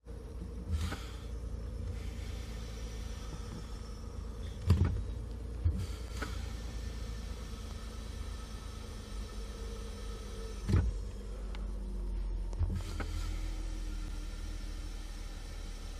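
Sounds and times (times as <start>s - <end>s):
low hum: 0.0s - 15.9s
brake pedal knocks: 4.4s - 6.3s.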